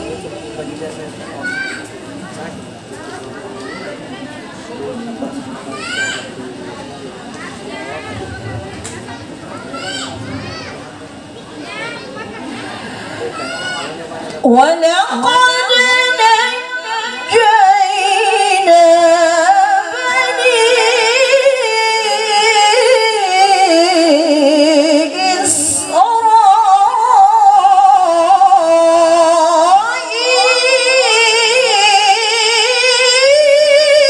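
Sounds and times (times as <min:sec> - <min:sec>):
woman reciting melodically into microphone: 0:14.4 - 0:34.0.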